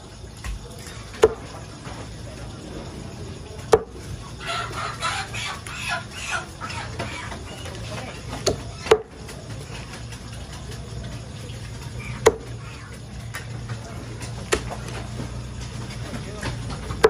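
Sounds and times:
low hum: 0:00.0 - 0:17.0
cleaver chopping on wooden block: 0:12.2 - 0:12.5.

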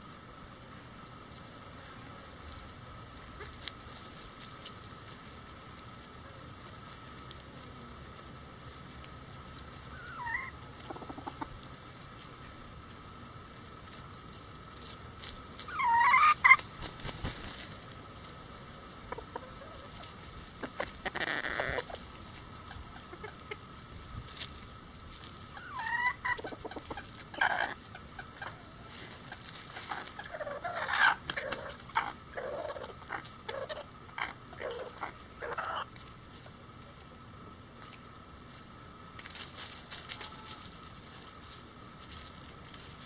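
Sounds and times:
beaks pecking corn cob: 0:01.8 - 0:13.0, 0:13.8 - 0:18.4
chickens clucking: 0:02.5 - 0:37.2, 0:39.2 - 0:43.0
chickens squawking: 0:09.7 - 0:12.0, 0:15.6 - 0:17.6, 0:19.0 - 0:24.0, 0:25.2 - 0:36.0.

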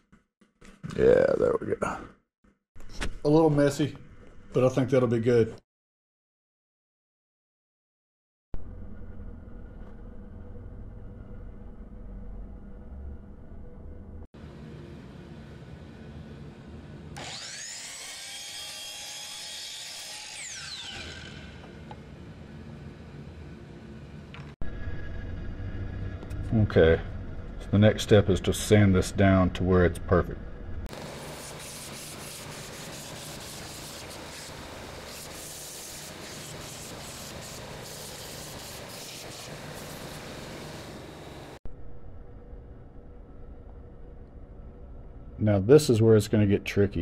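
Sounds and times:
low motor hum: 0:08.6 - 0:17.2, 0:21.5 - 0:28.9
steady low hum: 0:08.6 - 0:17.2, 0:21.7 - 0:47.0
miter saw cutting wood: 0:17.2 - 0:21.8
belt sander sanding wood: 0:30.9 - 0:41.6.

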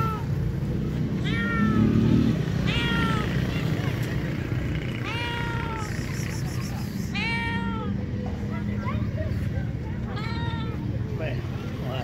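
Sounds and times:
cat meowing: 0:00.0 - 0:00.3, 0:01.2 - 0:03.8, 0:05.0 - 0:06.4, 0:07.0 - 0:08.0.

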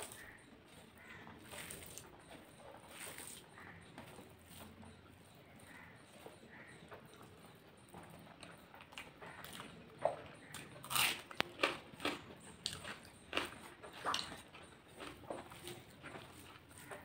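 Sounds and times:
mouth chewing sounds: 0:05.6 - 0:17.0.

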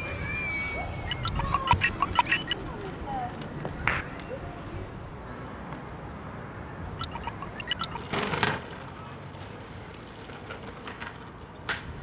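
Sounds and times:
scattered clicks and knocks: 0:01.1 - 0:02.6, 0:07.0 - 0:08.6.

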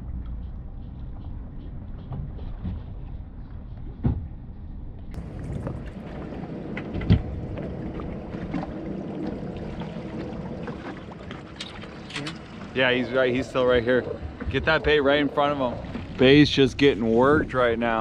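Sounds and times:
wind noise on microphone: 0:00.0 - 0:08.6
boat engine rumbling: 0:05.0 - 0:18.0.

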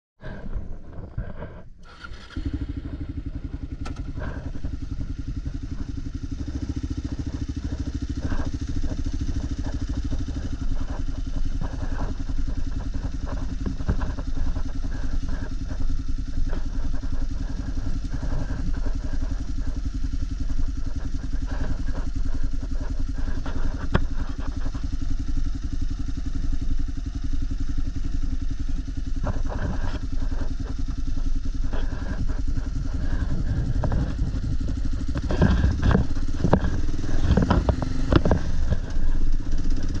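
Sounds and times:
motorcycle engine running: 0:00.2 - 0:40.0
clicks and rattles: 0:29.2 - 0:40.0.

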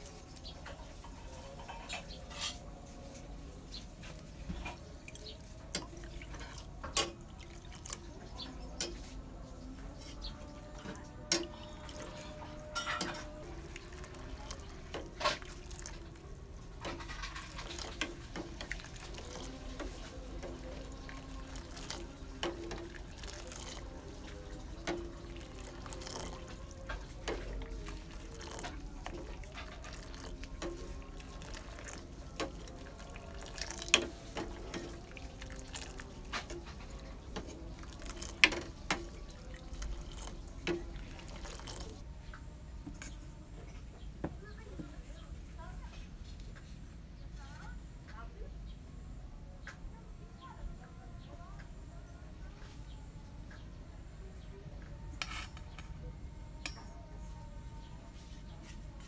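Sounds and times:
liquid sloshing: 0:03.8 - 0:42.0
ladle clinking against pot: 0:10.9 - 0:16.0.

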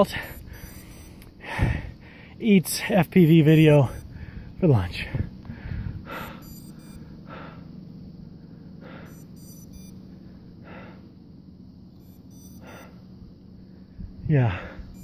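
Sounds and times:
faint high-pitched beeps: 0:00.0 - 0:01.3, 0:02.8 - 0:04.2, 0:06.2 - 0:07.1, 0:09.0 - 0:10.0, 0:11.9 - 0:13.0
man gasping for breath: 0:01.4 - 0:02.4, 0:04.1 - 0:06.5, 0:14.4 - 0:15.0.

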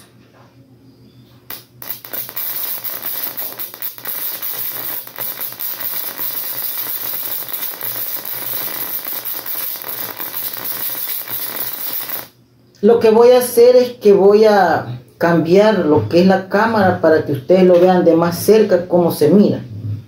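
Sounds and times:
electric arc sizzling and crackling: 0:01.5 - 0:12.4.

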